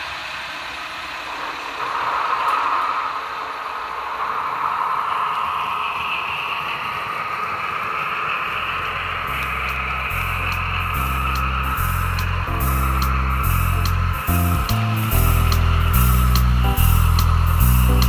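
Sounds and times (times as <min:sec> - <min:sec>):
model train rolling: 0:00.0 - 0:18.0
music: 0:09.3 - 0:18.0.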